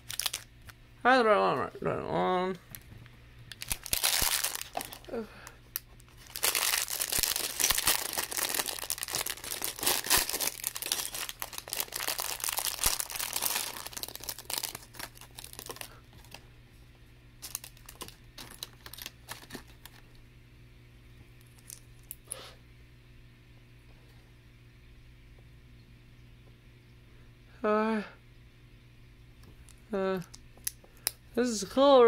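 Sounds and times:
plastic bag crinkling: 0.0 - 0.5, 3.5 - 16.4, 17.4 - 20.1.

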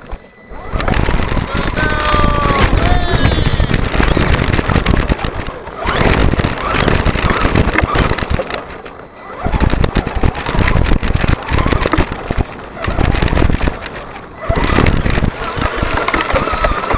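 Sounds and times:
toy truck chassis rattling: 0.0 - 16.9.

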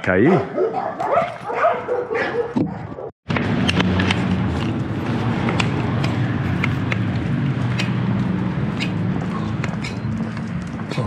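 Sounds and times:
footsteps on cobblestones: 3.3 - 11.0
vehicle engine hum: 3.3 - 11.0.

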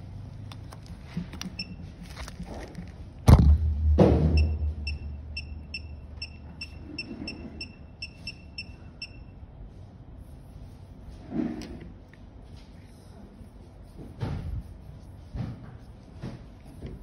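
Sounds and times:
thumps: 3.2 - 4.9
short high electronic beeps: 4.4 - 9.3.

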